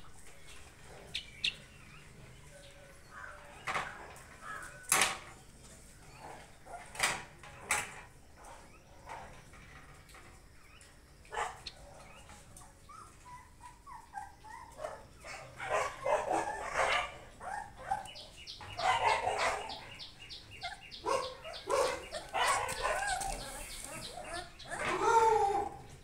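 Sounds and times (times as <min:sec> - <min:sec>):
puppies whimpering and squealing: 0:11.8 - 0:26.0.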